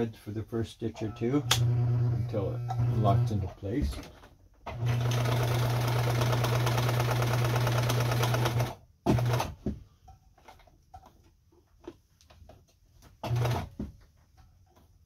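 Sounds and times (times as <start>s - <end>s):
sewing machine stitching: 1.4s - 9.6s, 13.2s - 13.8s.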